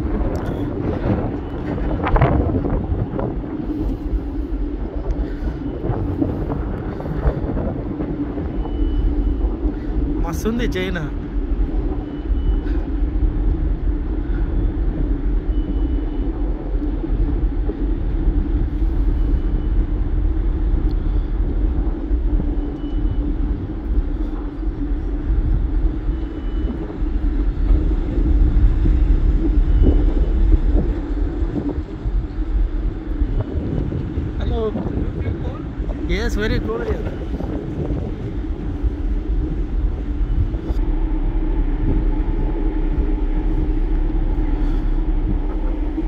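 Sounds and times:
vehicle rumble: 0:00.0 - 0:46.0.

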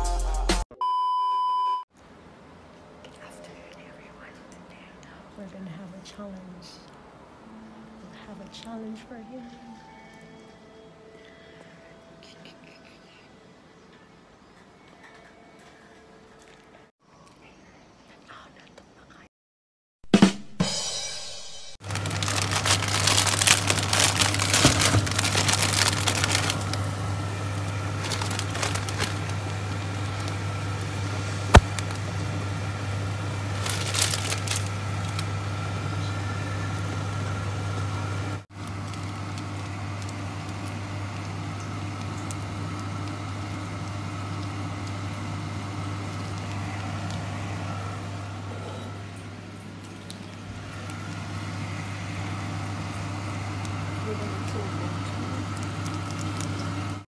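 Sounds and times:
plastic packaging crinkling and tearing: 0:21.8 - 0:30.9, 0:31.5 - 0:32.1, 0:33.5 - 0:35.4, 0:38.6 - 0:45.0, 0:54.4 - 0:57.0.

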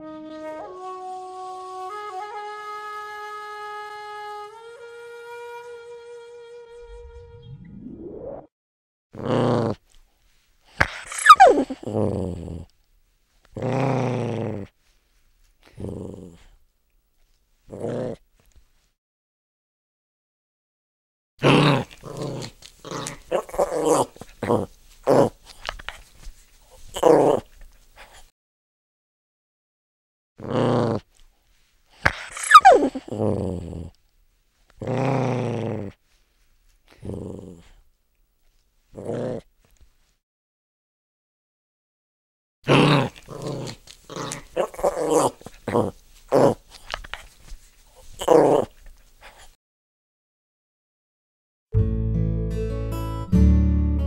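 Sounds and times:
small dog growling: 0:09.2 - 0:09.9, 0:10.8 - 0:12.7, 0:13.5 - 0:14.8, 0:15.6 - 0:16.6, 0:17.7 - 0:18.5, 0:21.4 - 0:25.9, 0:26.8 - 0:28.3, 0:30.4 - 0:31.2, 0:32.0 - 0:34.0, 0:34.8 - 0:36.0, 0:36.9 - 0:37.8, 0:38.9 - 0:39.6, 0:42.7 - 0:47.2, 0:48.0 - 0:49.6
dog yelping: 0:11.0 - 0:11.8, 0:23.0 - 0:24.2, 0:32.2 - 0:33.0
high-pitched yelp: 0:11.1 - 0:11.8, 0:32.3 - 0:33.0.

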